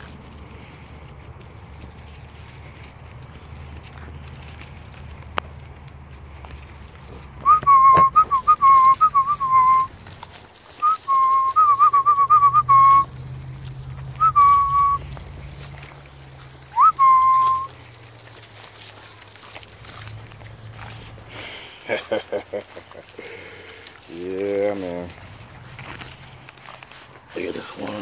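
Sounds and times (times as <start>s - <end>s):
person whistling: 7.4s - 9.9s, 10.8s - 13.1s, 14.2s - 15.0s, 16.7s - 17.7s.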